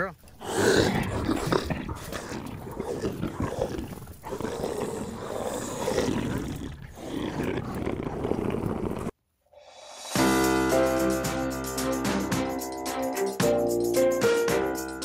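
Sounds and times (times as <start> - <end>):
rough roaring growls: 0.3 - 9.1.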